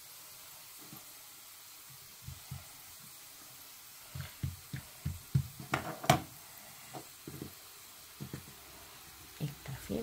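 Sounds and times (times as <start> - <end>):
dough thudding on wooden worktop: 4.1 - 6.3.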